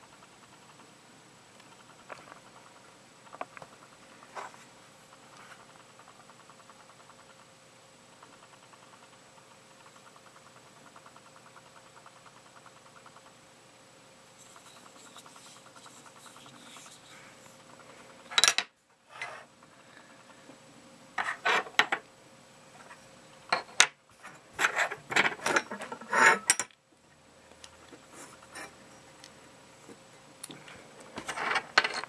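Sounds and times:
knocks and scraping on tabletop: 21.2s - 22.0s.

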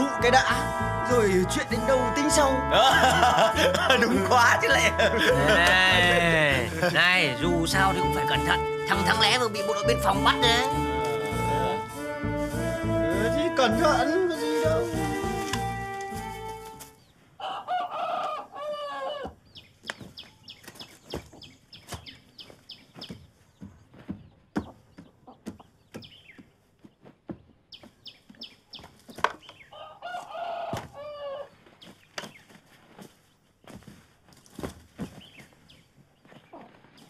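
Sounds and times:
chicken chirps and clucks: 17.0s - 23.6s, 35.3s - 37.0s
rooster crowing: 17.4s - 19.3s, 29.7s - 31.5s.

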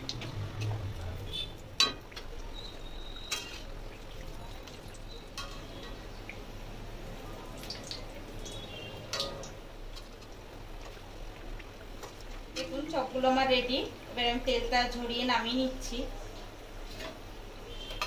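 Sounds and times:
food sizzling in hot oil: 0.0s - 18.0s
metal spatula clinking pan: 1.8s - 2.1s, 3.3s - 3.7s, 5.3s - 6.0s, 9.1s - 9.5s.

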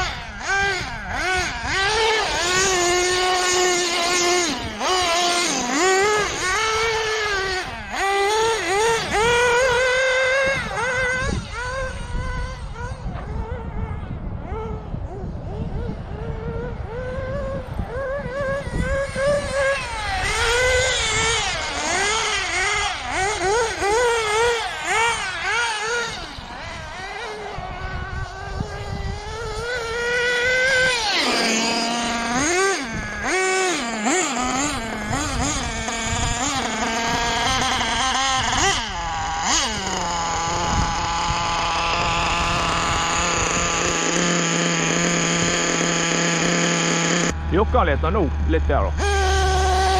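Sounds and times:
model buggy engine revving: 0.0s - 49.9s.

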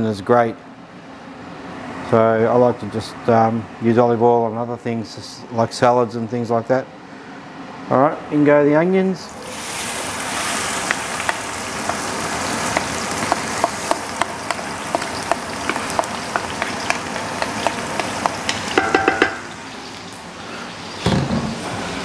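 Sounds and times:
onions sizzling in oil: 9.4s - 21.0s
ringing knocks on pot: 18.8s - 19.5s.

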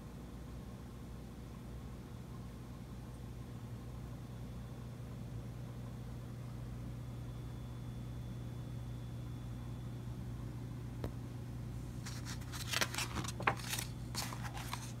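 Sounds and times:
steady low hum: 0.0s - 15.0s
book page turning: 12.0s - 15.0s.

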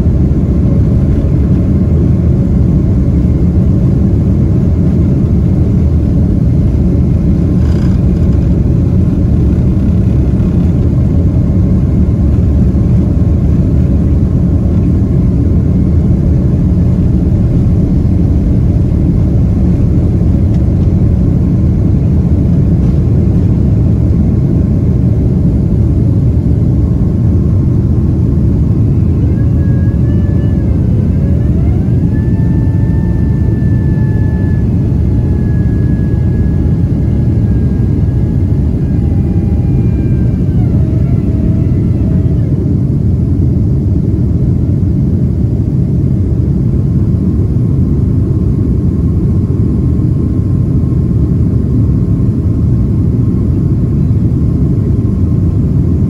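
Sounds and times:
jet engine rumble: 0.0s - 56.0s
hydraulic whine rising in pitch: 28.6s - 42.8s.

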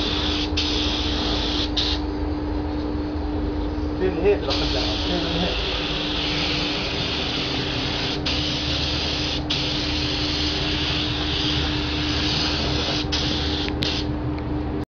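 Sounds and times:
paint spray gun hissing: 0.0s - 2.0s, 4.5s - 14.1s
steady low hum: 0.0s - 14.8s.

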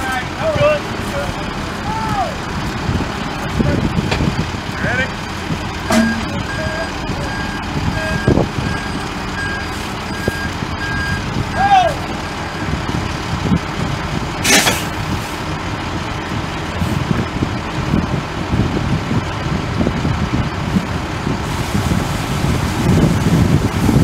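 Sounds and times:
diesel engines running: 0.0s - 24.0s
sharp hiss: 14.4s - 14.9s.

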